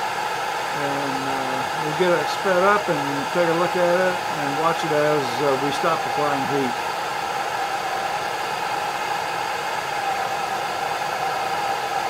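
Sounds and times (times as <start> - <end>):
steam jets hissing: 0.0 - 8.8.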